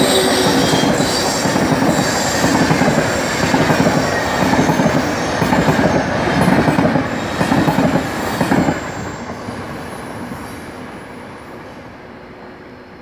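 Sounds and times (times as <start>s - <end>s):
train wheels running on rails: 0.0s - 13.0s.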